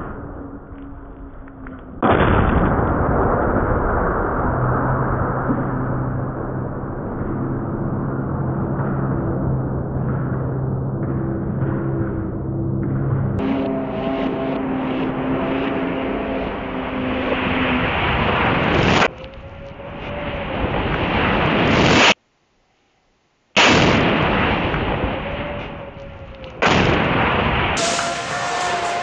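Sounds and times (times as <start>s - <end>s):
distant rocket explosions: 0.0s - 12.1s, 13.4s - 22.2s, 23.6s - 29.0s
rocket launcher blasts: 23.6s - 25.8s, 26.6s - 29.0s.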